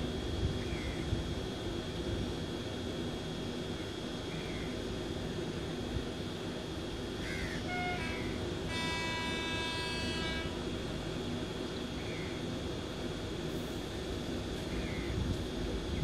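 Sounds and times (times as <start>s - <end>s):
train horn: 7.6s - 10.7s.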